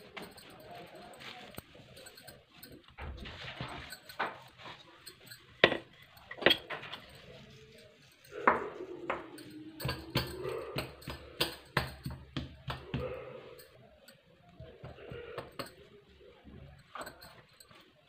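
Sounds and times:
glass bangles clinking: 0:00.0 - 0:18.0
hands patting dough: 0:08.4 - 0:16.7.

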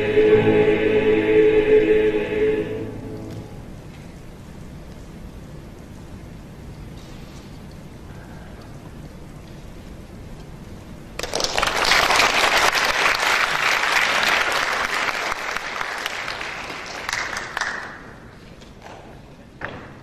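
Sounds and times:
audience applauding: 0:11.2 - 0:18.1.

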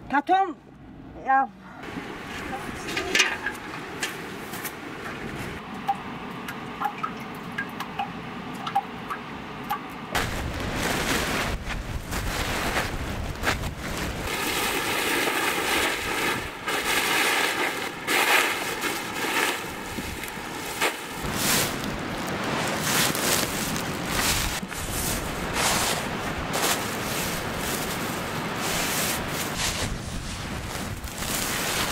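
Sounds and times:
wind on microphone: 0:10.2 - 0:14.7, 0:19.1 - 0:31.9
salt crunching scooped by hand: 0:14.3 - 0:31.9.

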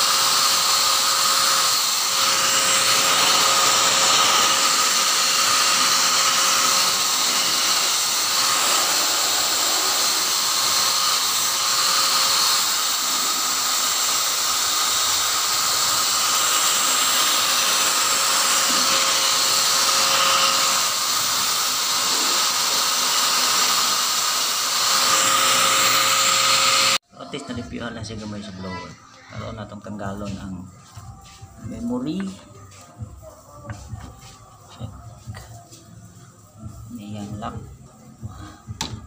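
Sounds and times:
electric blower running: 0:00.0 - 0:27.0.

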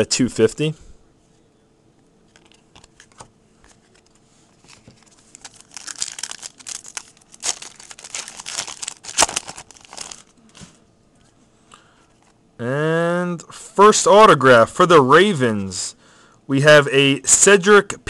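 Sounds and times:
foil wrapper tearing and crinkling: 0:04.7 - 0:10.3.

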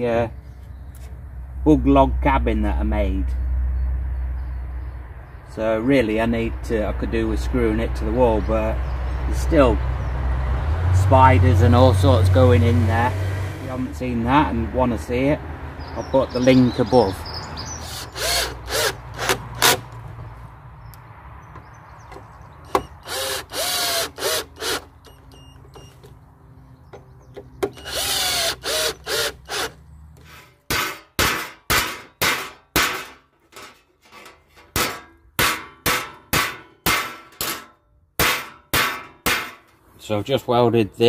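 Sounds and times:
cordless drill driving screws: 0:17.8 - 0:19.8, 0:22.7 - 0:25.9, 0:27.6 - 0:30.4
hammer striking metal plate: 0:30.7 - 0:33.7, 0:34.7 - 0:39.7.

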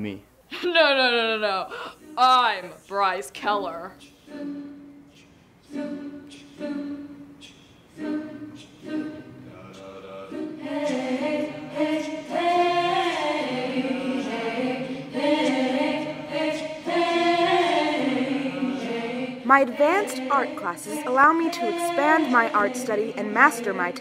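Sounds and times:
choir singing: 0:01.9 - 0:24.0.

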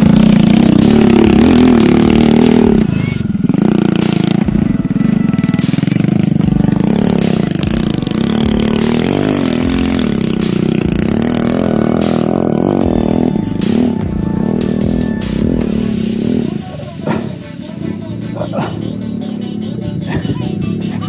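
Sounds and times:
engine clatter: 0:00.0 - 0:21.0
motorcycle engine revving: 0:00.0 - 0:21.0.

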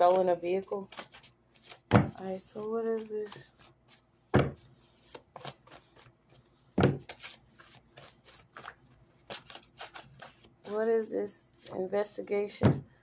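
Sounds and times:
card deck thumps: 0:06.8 - 0:07.2.

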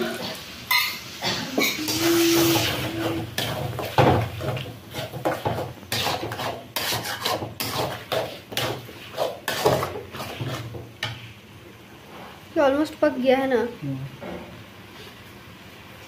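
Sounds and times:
metal spatula scraping a pan: 0:00.7 - 0:11.2.

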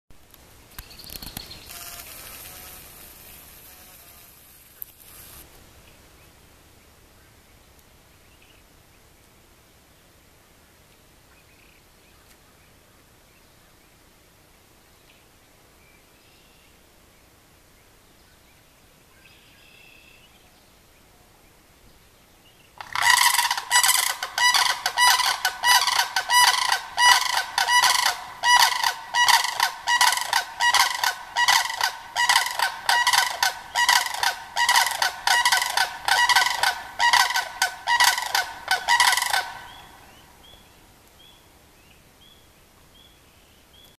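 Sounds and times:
cranes rattling calls: 0:22.8 - 0:40.1
distant crane call: 0:22.8 - 0:40.5.

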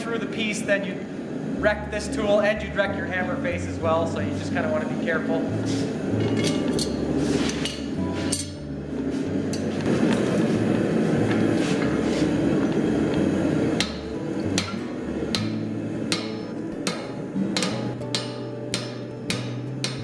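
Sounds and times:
steady background noise: 0:00.0 - 0:20.0
hammer striking hot steel: 0:06.2 - 0:08.7, 0:11.3 - 0:20.0.

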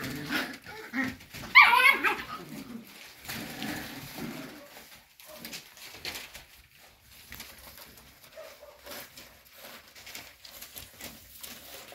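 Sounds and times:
puppies scrabbling on paper: 0:00.0 - 0:11.9
puppy whimper: 0:00.6 - 0:02.4.

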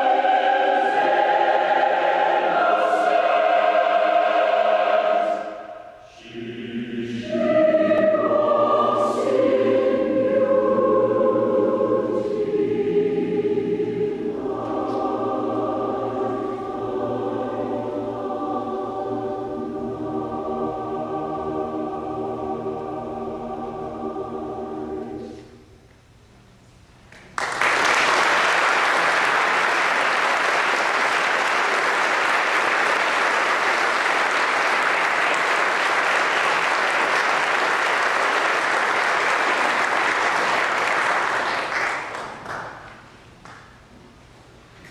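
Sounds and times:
choir holding a chord: 0:00.0 - 0:25.7, 0:30.3 - 0:42.1
audience applause: 0:27.4 - 0:42.8.

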